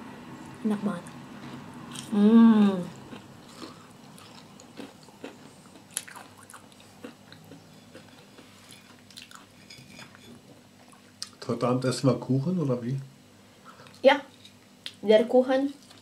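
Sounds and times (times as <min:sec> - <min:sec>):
chewing and biting fried food: 0:01.3 - 0:02.2, 0:02.8 - 0:09.6.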